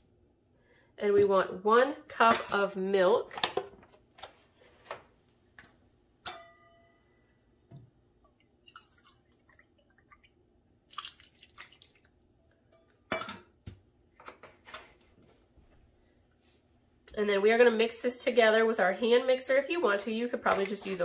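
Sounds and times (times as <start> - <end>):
milk pouring and splashing: 8.3 - 12.6.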